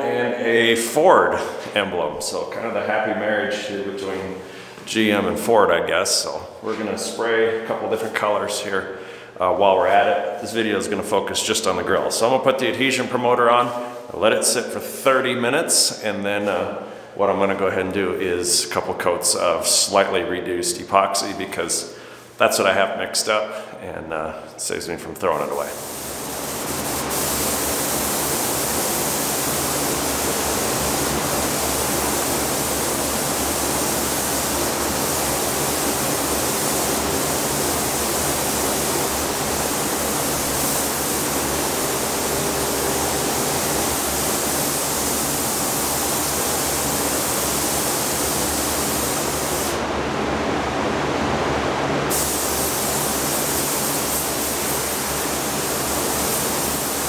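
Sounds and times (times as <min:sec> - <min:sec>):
spray booth air hiss: 0:25.4 - 0:49.8, 0:52.1 - 0:57.0
spray gun spraying: 0:25.4 - 0:49.8, 0:52.1 - 0:57.0.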